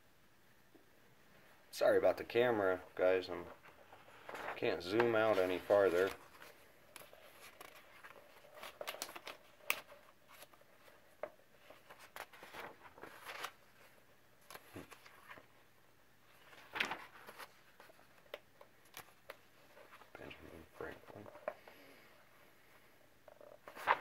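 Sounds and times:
paper pages rustling: 0:03.4 - 0:15.6, 0:16.3 - 0:21.6, 0:23.4 - 0:24.0.

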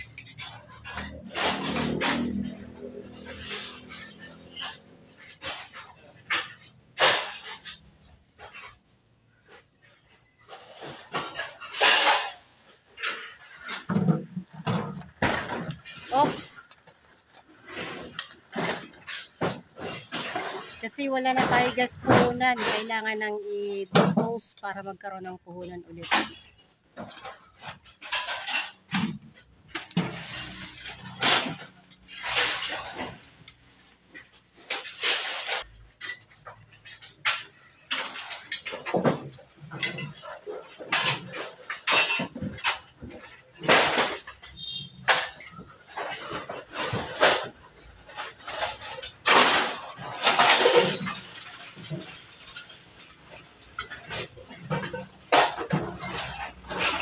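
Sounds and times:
rustling and clattering of junk: 0:00.0 - 0:57.0
scrap metal clanking and scraping: 0:00.0 - 0:57.0.

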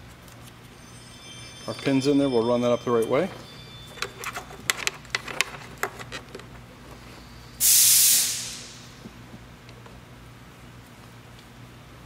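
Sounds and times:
short loud hiss: 0:07.6 - 0:09.0.

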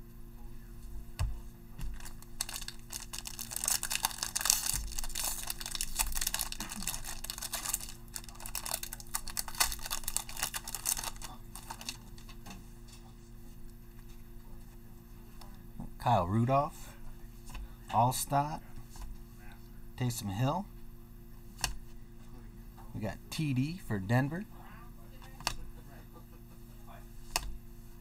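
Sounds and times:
handling of cards: 0:01.8 - 0:12.6
foil wrapper tearing and crinkling: 0:01.9 - 0:12.2.

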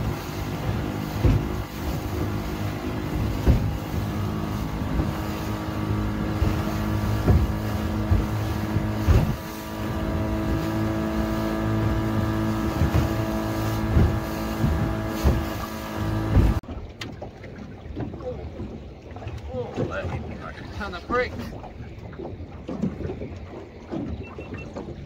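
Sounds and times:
boat engine running: 0:00.0 - 0:25.0
knocks and thumps: 0:01.1 - 0:02.4, 0:03.2 - 0:03.8, 0:06.3 - 0:09.5, 0:12.7 - 0:16.6.

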